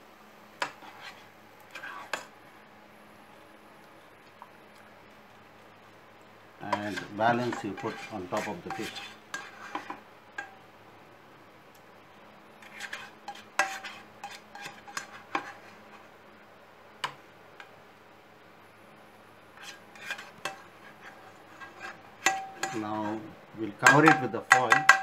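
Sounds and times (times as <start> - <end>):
metal spoon scraping a saucepan: 0.6 - 2.3, 6.6 - 10.5, 12.6 - 15.8, 19.6 - 25.0.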